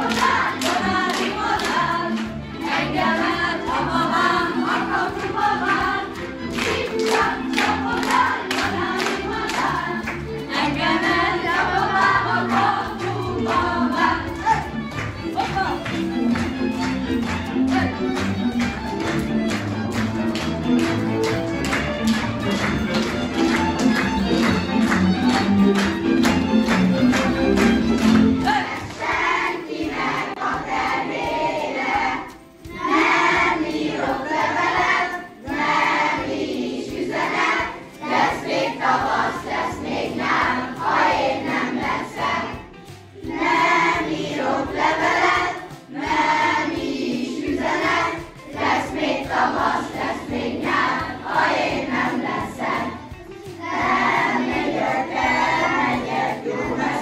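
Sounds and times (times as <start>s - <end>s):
children singing in chorus: 0.0s - 14.6s, 28.4s - 42.6s, 43.2s - 53.0s, 53.6s - 57.0s.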